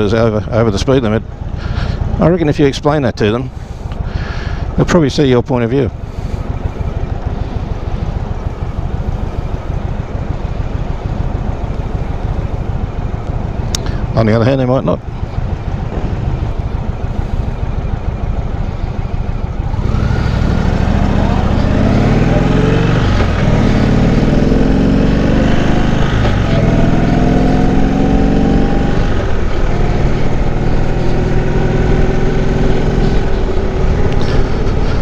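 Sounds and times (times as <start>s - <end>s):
motorcycle engine revving: 14.8s - 35.0s.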